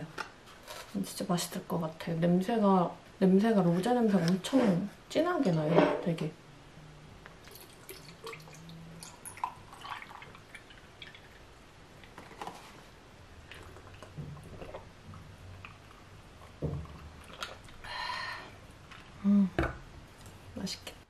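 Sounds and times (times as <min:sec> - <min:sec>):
drink pouring into glass: 0:07.4 - 0:11.5
sipping and swallowing: 0:13.4 - 0:17.9.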